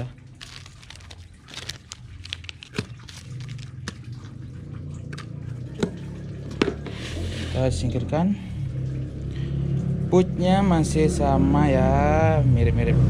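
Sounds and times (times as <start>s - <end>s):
plastic packet crinkling: 0.0s - 4.3s
steady low background hum: 0.0s - 11.4s.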